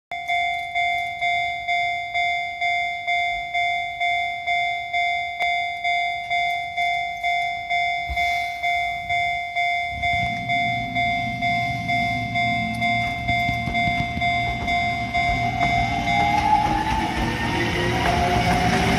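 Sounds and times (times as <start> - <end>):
level crossing warning bell: 0.1 - 18.9
train motors humming: 9.9 - 18.9.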